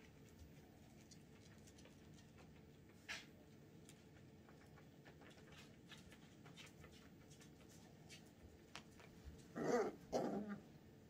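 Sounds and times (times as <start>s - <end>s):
puppies rustling and scrabbling: 0.0s - 9.9s
puppy vocalisation: 9.5s - 10.7s.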